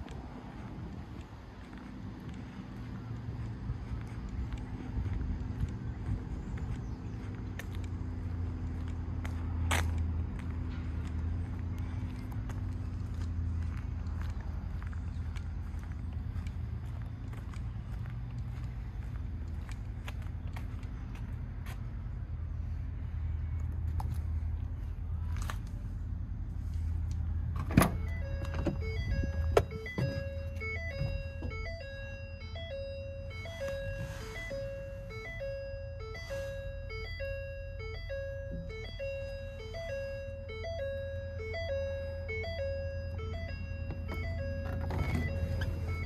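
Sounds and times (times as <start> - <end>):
diesel engine humming: 0.0 - 46.0
electronic chime tune: 28.2 - 46.0.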